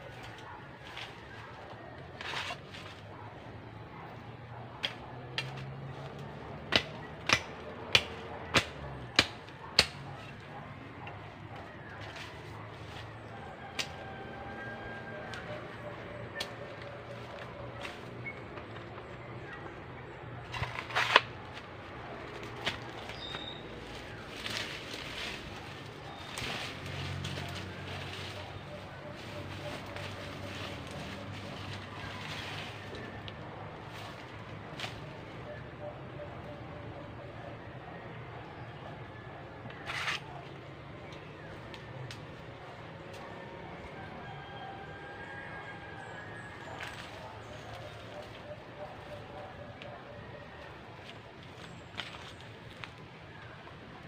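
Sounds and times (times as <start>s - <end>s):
undergrowth rustling: 0.0s - 37.2s, 39.4s - 54.0s
machete chopping: 4.8s - 5.7s, 6.5s - 10.1s, 20.5s - 21.7s, 22.4s - 23.3s.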